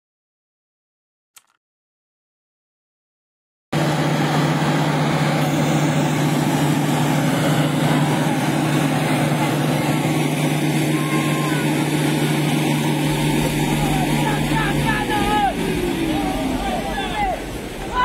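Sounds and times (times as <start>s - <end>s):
loud steady rushing noise: 3.8s - 18.0s
truck engines running: 3.8s - 18.0s.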